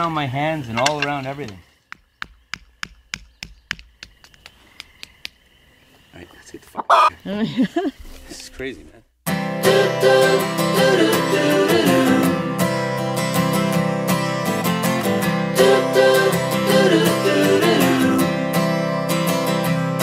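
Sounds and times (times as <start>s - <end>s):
song with strummed acoustic guitar: 9.3s - 20.0s.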